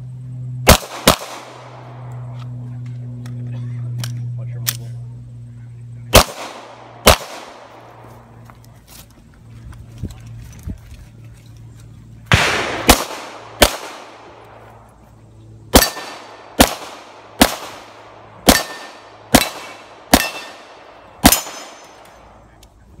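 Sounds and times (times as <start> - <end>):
pistol shots: 0.6 - 2.1, 6.1 - 8.0, 12.3 - 14.6, 15.7 - 22.3.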